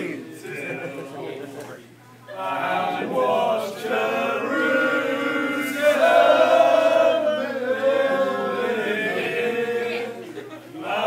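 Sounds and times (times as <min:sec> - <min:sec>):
men singing in unison: 0:02.4 - 0:11.0.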